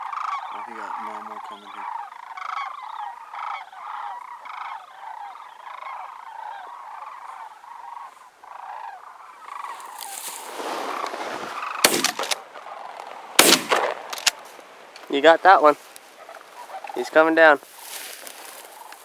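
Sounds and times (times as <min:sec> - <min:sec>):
cranes calling: 0:00.0 - 0:19.0
shotgun firing: 0:11.8 - 0:12.4, 0:13.4 - 0:14.3.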